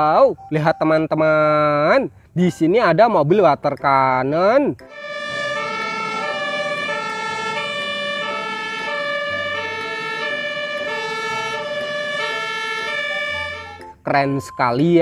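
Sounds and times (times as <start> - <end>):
two-tone emergency siren: 4.9 - 14.6.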